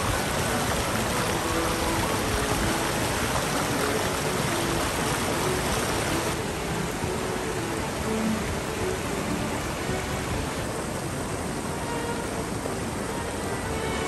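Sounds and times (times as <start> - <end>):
water rushing over rocks: 0.0 - 14.0.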